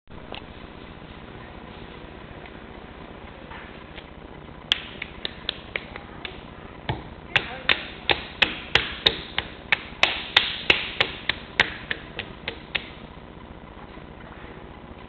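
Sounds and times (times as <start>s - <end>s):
hands slapping wet clay: 4.7s - 6.4s, 7.4s - 13.0s.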